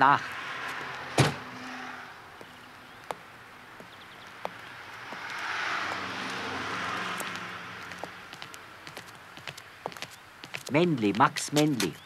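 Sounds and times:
car driving past: 0.0s - 9.4s.

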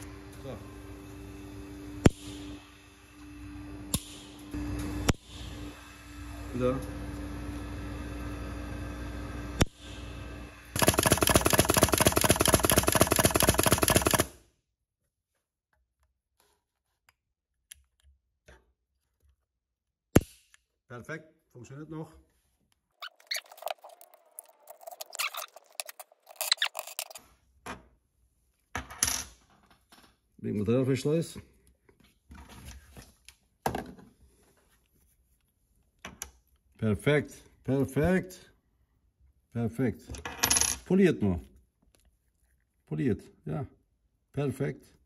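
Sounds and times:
fast sharp mechanical clicks: 10.8s - 14.3s.

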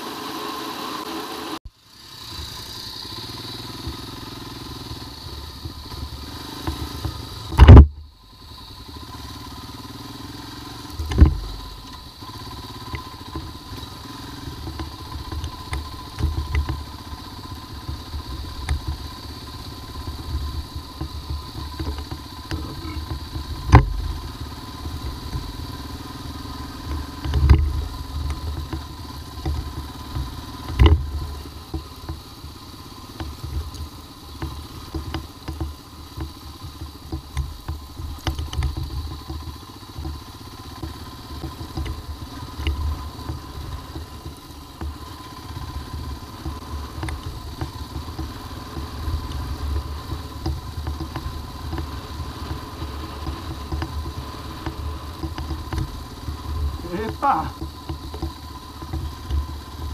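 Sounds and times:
motorcycle engine rumbling: 0.0s - 59.9s
motorcycle jolting knocks: 7.0s - 8.0s, 11.0s - 12.1s, 20.1s - 25.8s, 27.0s - 32.3s.

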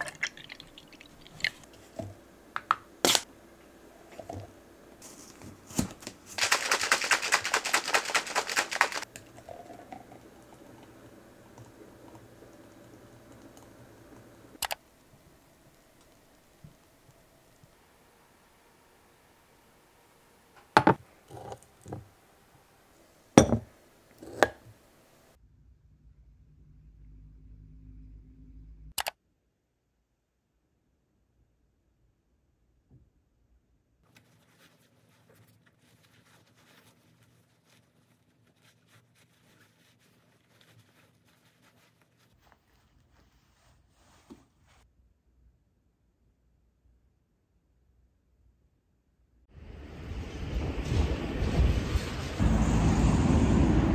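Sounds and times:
faint low hum: 9.1s - 28.9s
coat fabric rustling: 34.1s - 44.9s.

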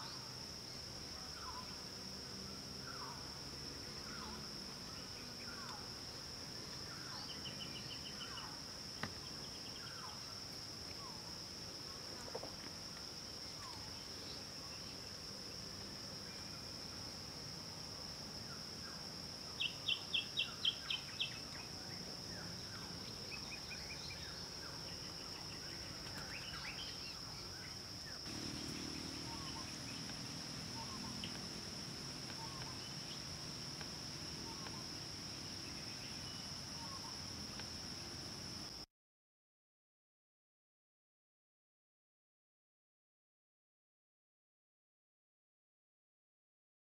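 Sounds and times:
high-pitched insect drone: 28.2s - 38.4s.

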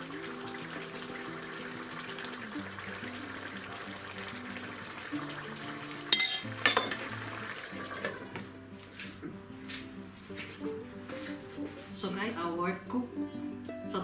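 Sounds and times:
broth simmering in a pan: 0.0s - 8.7s
glass lid knocking onto pan: 6.1s - 7.1s
spoon clinking against dishes: 6.1s - 7.1s.

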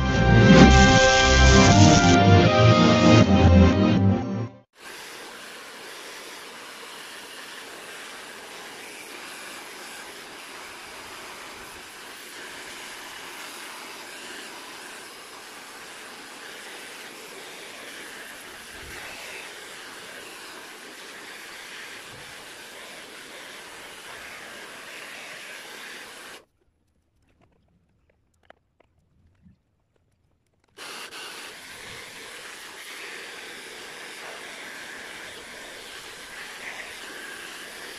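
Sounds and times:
hair dryer blowing: 4.8s - 26.4s, 30.8s - 37.9s.

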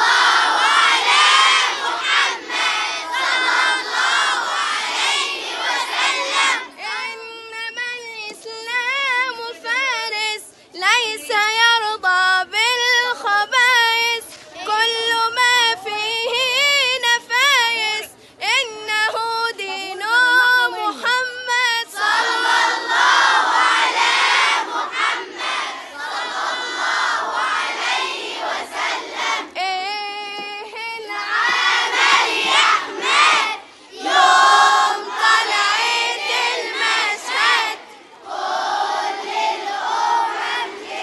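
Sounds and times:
girl chanting recitation: 6.1s - 22.9s.

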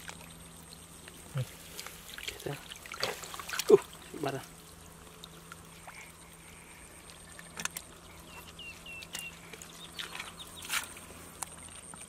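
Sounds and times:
hands splashing in muddy water: 1.7s - 3.9s
bird chirping: 7.9s - 10.9s.

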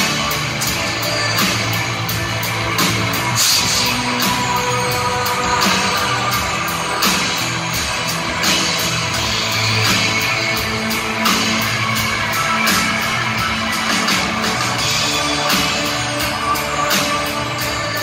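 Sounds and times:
drums with cymbal hits: 0.0s - 18.0s.

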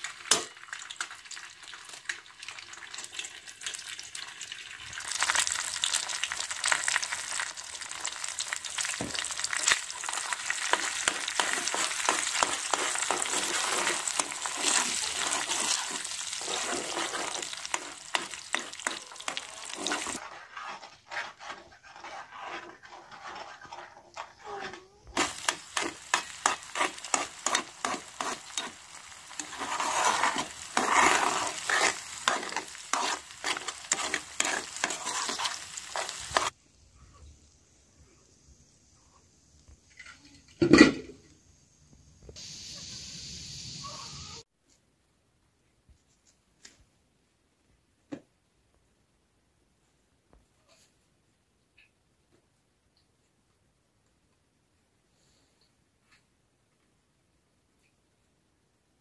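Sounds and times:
eggs sizzling in oil: 0.0s - 44.5s
metal spoon scraping a pan: 8.2s - 36.6s.

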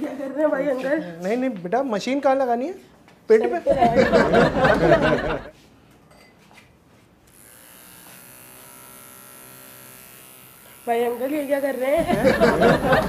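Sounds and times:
electric hair trimmer buzzing: 7.3s - 13.0s.

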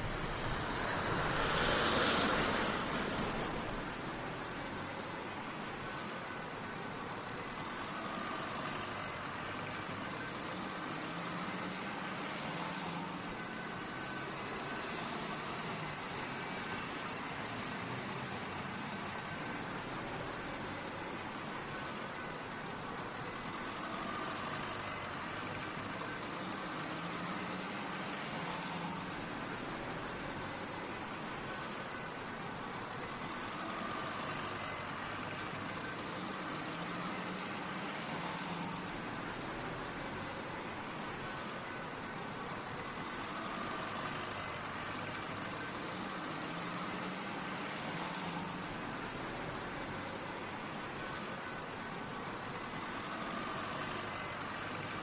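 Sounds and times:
low engine hum: 0.0s - 55.0s
motorway traffic noise: 0.0s - 55.0s.

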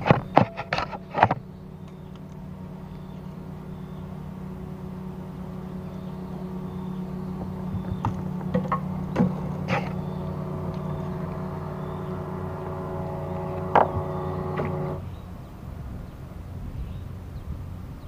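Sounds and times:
hum of held pitches: 0.0s - 15.6s
low rumble: 1.0s - 15.3s.

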